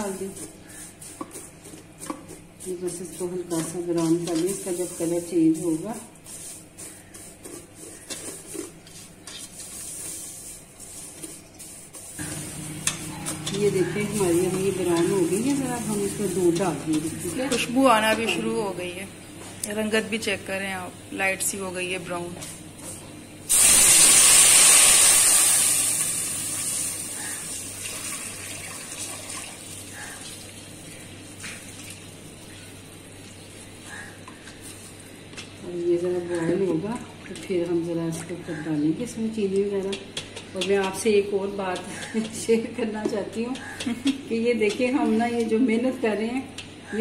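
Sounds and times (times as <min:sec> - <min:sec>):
spatula scraping metal pot: 0:00.0 - 0:18.6
faint sizzle: 0:00.0 - 0:39.6
milk hissing in hot pan: 0:23.5 - 0:30.8
liquid pouring and splashing: 0:27.6 - 0:30.7.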